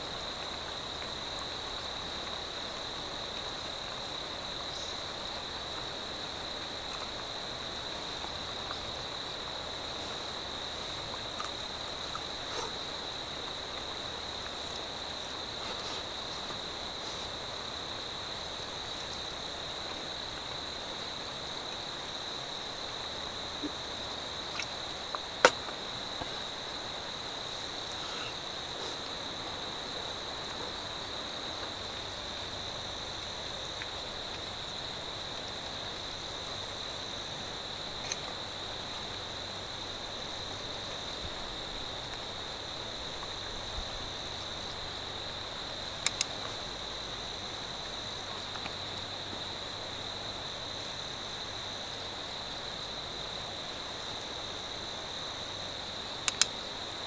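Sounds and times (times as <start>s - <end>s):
crickets chirping: 0.0s - 57.0s
faint clicks: 46.0s - 46.6s, 56.2s - 56.6s.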